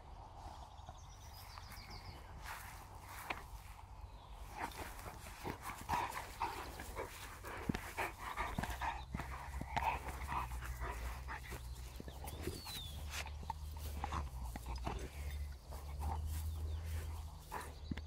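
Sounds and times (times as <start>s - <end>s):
dog panting: 4.3s - 18.0s.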